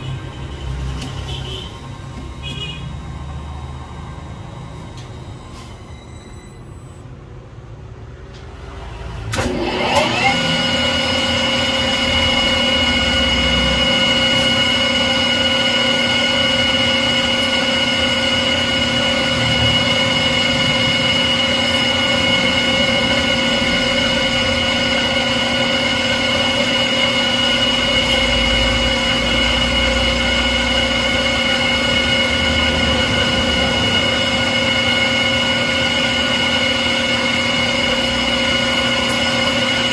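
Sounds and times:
metal lathe whining: 9.3s - 39.9s.

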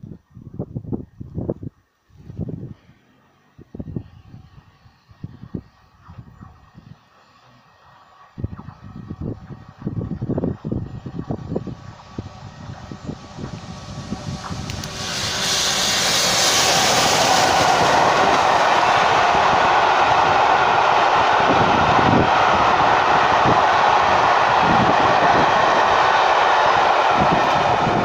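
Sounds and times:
wheels rumbling on rail: 3.2s - 28.0s
steam locomotive hiss: 11.6s - 28.0s.

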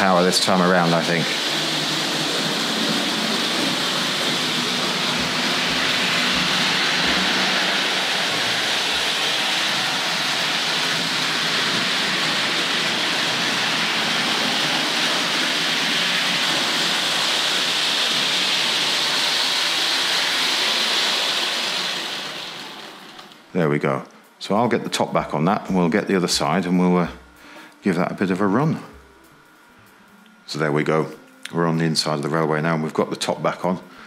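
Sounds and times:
model train wheels rattling on rails: 0.0s - 23.4s.

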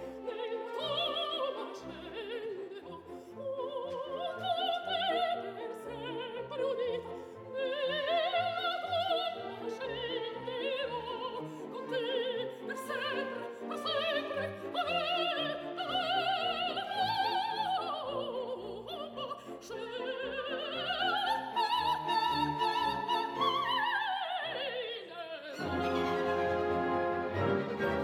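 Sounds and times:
operatic soprano singing: 0.0s - 28.0s
orchestra strings playing: 25.6s - 28.0s.

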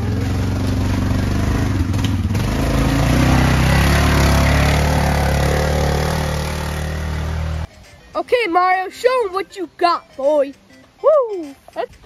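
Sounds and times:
atv engine under throttle: 0.0s - 7.7s.

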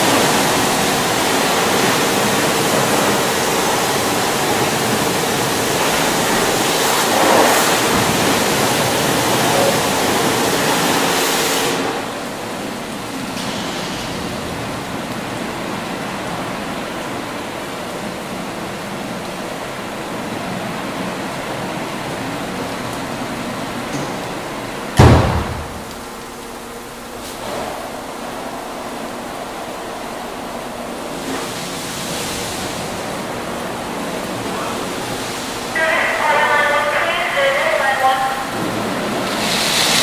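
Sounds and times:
car wash machine humming: 0.0s - 40.0s
water spray hissing: 38.3s - 40.0s.

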